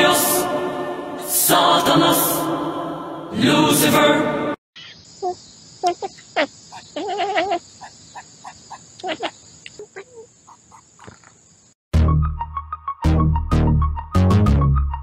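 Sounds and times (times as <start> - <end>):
chanting music: 0.0 - 4.6
high insect buzz: 4.8 - 11.8
cat chirping: 5.2 - 7.9.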